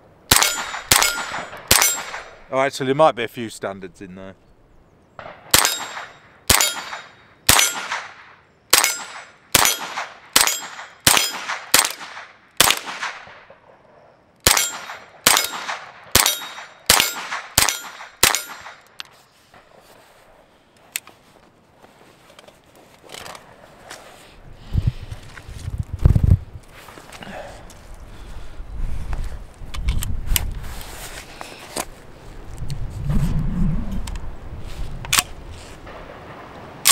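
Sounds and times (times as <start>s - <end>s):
rifle shots: 0.3s - 2.4s, 5.2s - 13.8s, 14.4s - 18.8s.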